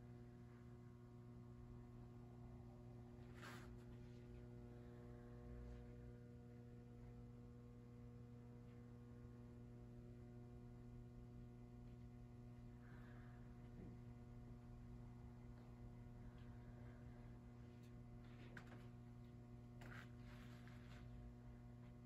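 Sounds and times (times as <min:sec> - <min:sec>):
electrical mains hum: 0:00.0 - 0:22.0
soft rustle: 0:03.2 - 0:04.5, 0:19.8 - 0:21.3.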